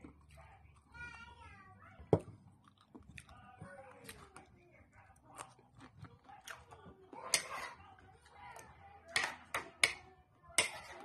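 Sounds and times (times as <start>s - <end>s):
shells and utensil clicking on dishes: 9.1s - 10.0s, 10.6s - 11.0s.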